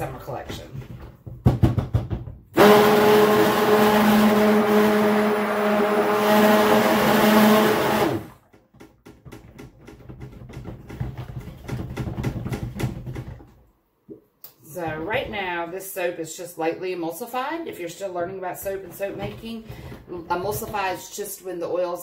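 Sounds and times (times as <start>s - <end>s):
stick blender running: 2.6s - 8.5s.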